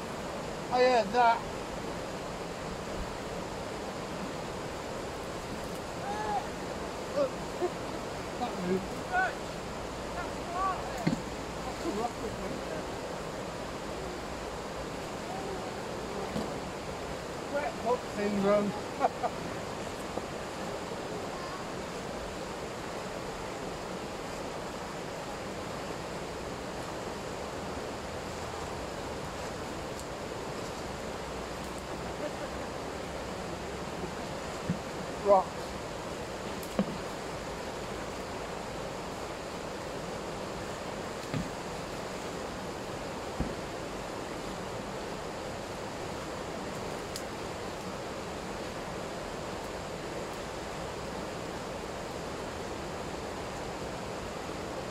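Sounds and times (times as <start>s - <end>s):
river rushing over rapids: 0.0s - 54.9s
short low thump: 36.7s - 37.0s.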